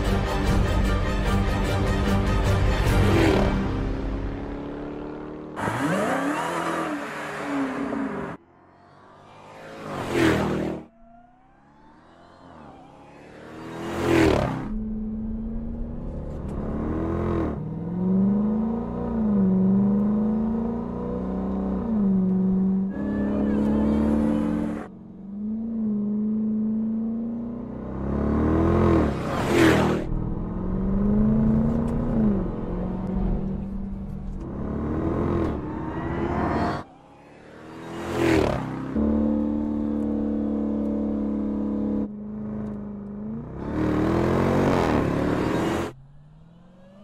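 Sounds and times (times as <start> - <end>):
car engine revving: 2.9 - 47.0
fast car pass-bys: 3.0 - 16.0, 28.0 - 40.3.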